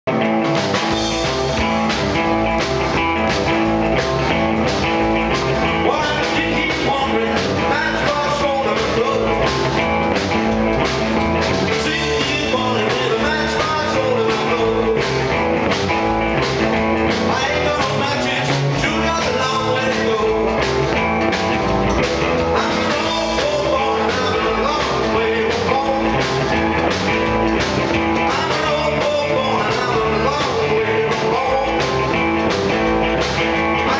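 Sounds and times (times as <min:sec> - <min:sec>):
drum kit beat: 0:00.1 - 0:33.9
electric guitar: 0:00.1 - 0:33.9
man singing: 0:05.6 - 0:09.8, 0:11.6 - 0:15.4, 0:17.1 - 0:21.0, 0:22.4 - 0:26.9, 0:28.1 - 0:32.6, 0:33.7 - 0:33.9.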